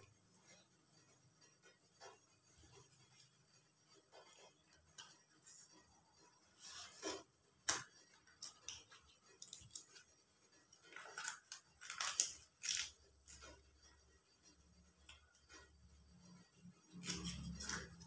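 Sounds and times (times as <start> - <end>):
banana leaf crackling: 10.9 - 13.5.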